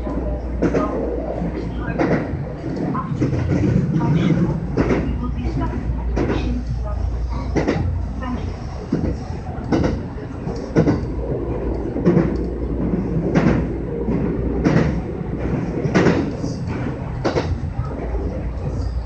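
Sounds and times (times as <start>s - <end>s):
train rumbling over bridge: 0.0s - 19.0s
wheels clacking over rail joints: 8.9s - 17.9s.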